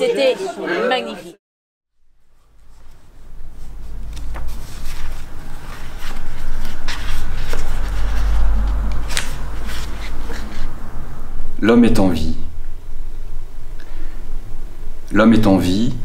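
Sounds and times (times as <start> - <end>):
steady low rumble: 2.1 - 15.2
book pages rustling: 2.2 - 10.6.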